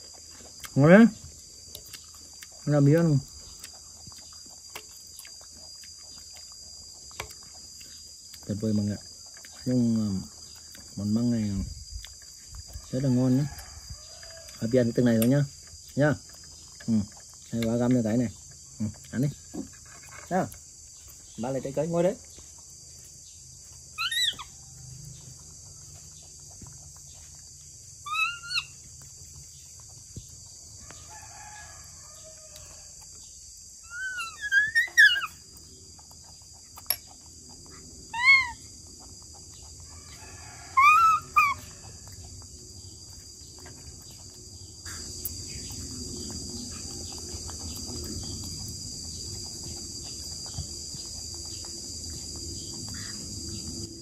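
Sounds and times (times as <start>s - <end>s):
insects buzzing: 0.0s - 54.0s
high animal calls: 23.9s - 24.7s, 28.0s - 28.8s, 33.8s - 35.5s, 37.7s - 38.8s, 40.0s - 42.0s.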